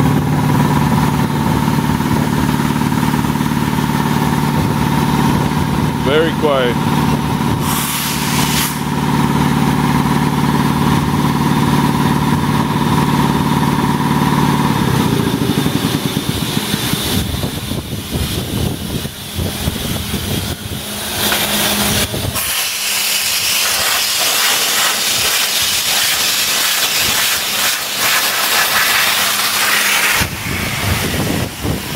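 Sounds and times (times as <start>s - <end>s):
air compressor pump humming: 0.0s - 31.9s
compressed air hissing: 7.5s - 9.0s, 16.1s - 31.9s.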